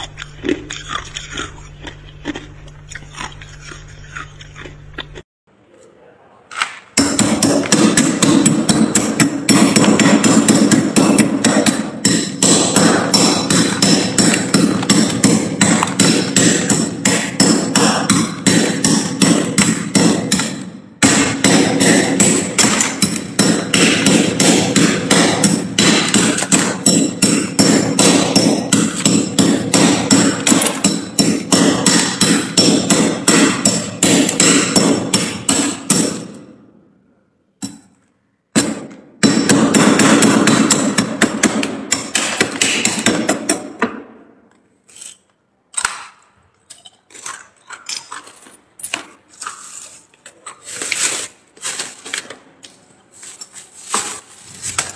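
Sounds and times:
metal spatula scraping frost: 44.9 - 45.3, 49.4 - 52.2, 53.1 - 54.9.

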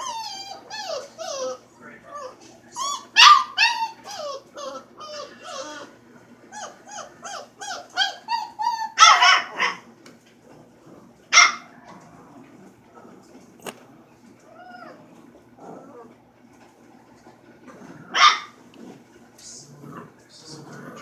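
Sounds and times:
puppy yipping: 0.0 - 1.6, 2.2 - 5.9, 6.6 - 9.8
rough puppy bark: 3.2 - 3.6, 9.0 - 9.8.

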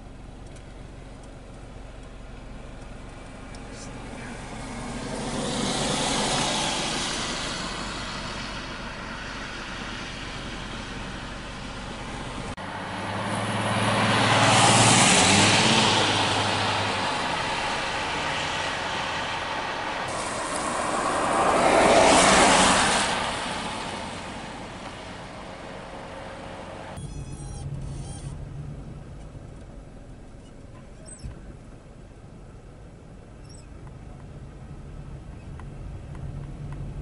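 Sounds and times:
low engine hum: 0.0 - 37.0
tyre noise on wet road: 0.0 - 37.0.

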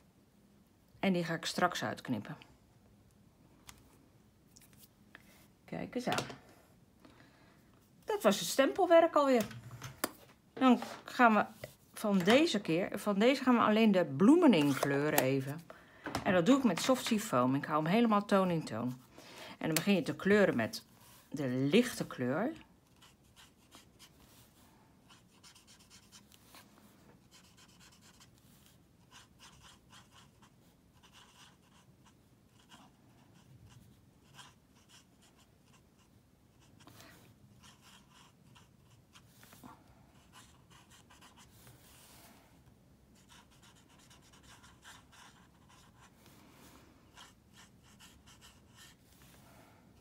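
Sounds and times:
marker scratching on cardstock: 43.2 - 46.1.

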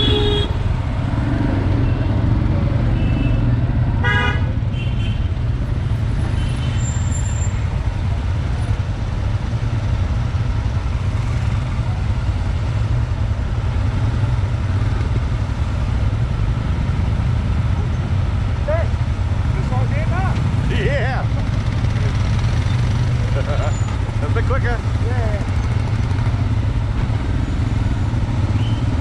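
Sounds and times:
vehicle horn toots: 0.0 - 0.6, 3.0 - 5.3
motorcycle engine rumble: 7.6 - 29.0.

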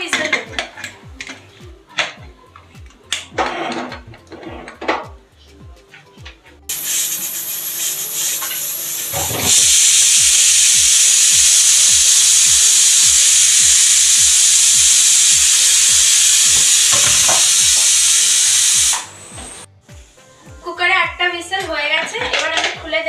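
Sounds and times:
pressure cooker steam hissing: 6.7 - 20.3.

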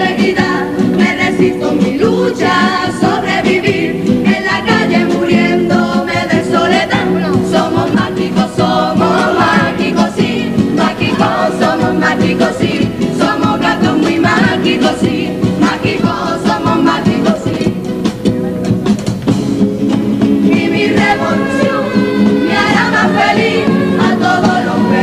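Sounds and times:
chorus singing in harmony: 0.0 - 18.0, 20.2 - 25.0
instrumental accompaniment: 0.0 - 25.0.

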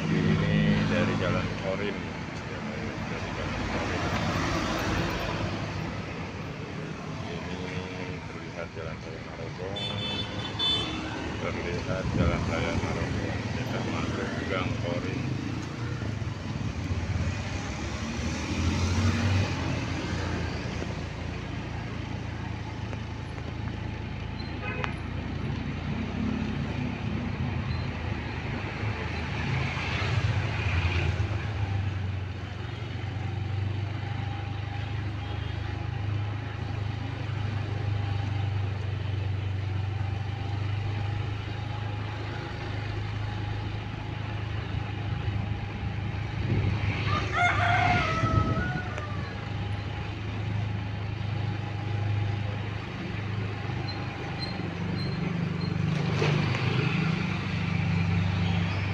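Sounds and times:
rooster crowing: 47.0 - 49.6.

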